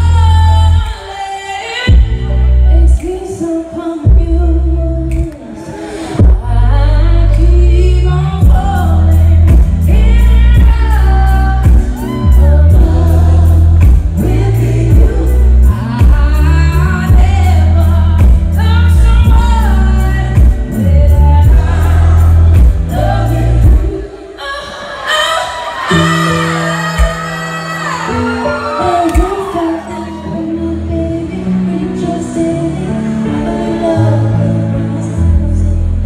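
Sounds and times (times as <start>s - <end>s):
woman singing: 0.0s - 5.6s, 6.2s - 36.0s
piano: 0.0s - 24.5s, 25.1s - 36.0s
heavy bass and beat: 8.4s - 24.0s
backing singers: 20.7s - 35.6s.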